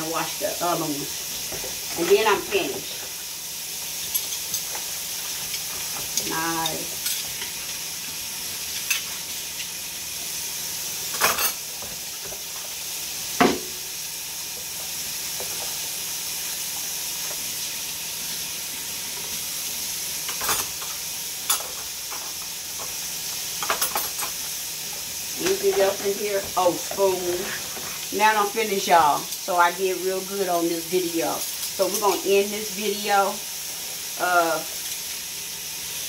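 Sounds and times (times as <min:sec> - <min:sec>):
silverware and dishes clinking: 0:11.1 - 0:11.6, 0:23.6 - 0:24.4.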